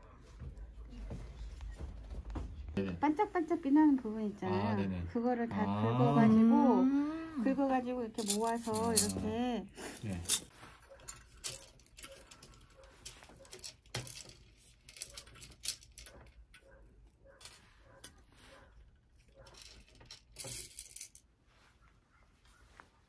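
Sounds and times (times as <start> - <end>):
plastic beads clicking in trays: 19.5 - 21.2.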